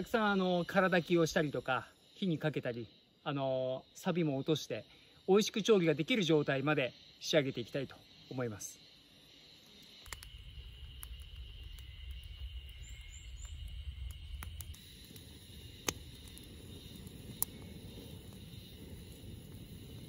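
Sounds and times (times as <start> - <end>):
campfire crackling: 0.0 - 20.0
insects droning: 0.0 - 20.0
sharp pops from fire: 9.3 - 20.0.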